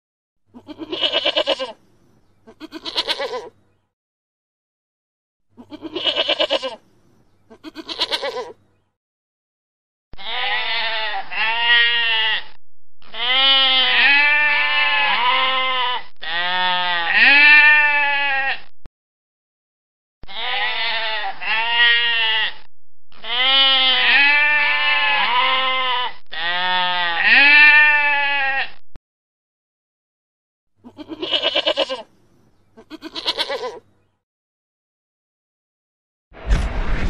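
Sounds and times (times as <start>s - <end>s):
goat bleating: 0.5s - 1.8s, 2.4s - 3.6s, 5.6s - 6.8s, 7.5s - 8.6s, 10.2s - 18.7s, 20.2s - 28.8s, 30.8s - 32.1s, 32.8s - 33.8s.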